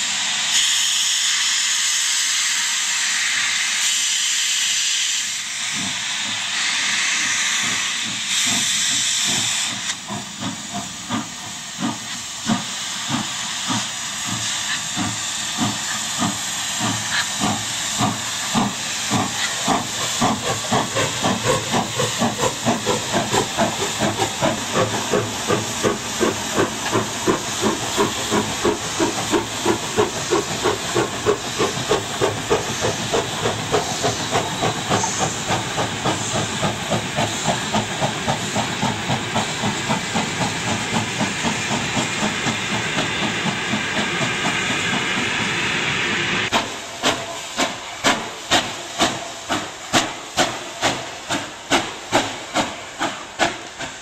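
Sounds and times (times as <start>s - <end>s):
hiss of escaping steam: 0.0s - 54.0s
steam locomotive exhaust chuffs: 0.0s - 54.0s.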